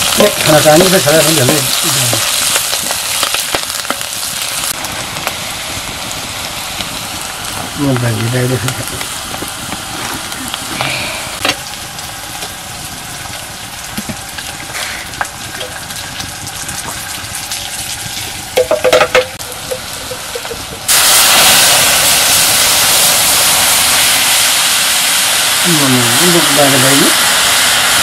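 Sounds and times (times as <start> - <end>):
loud sizzle: 0.0 - 28.0
onions frying in oil: 0.0 - 28.0
liquid pouring into hot oil: 11.6 - 28.0.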